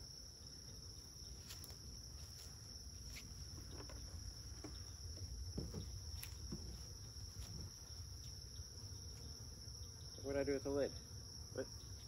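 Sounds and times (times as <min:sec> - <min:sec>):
crickets trilling: 0:00.0 - 0:12.0
knocks and scrapes of wooden boxes: 0:03.2 - 0:07.8.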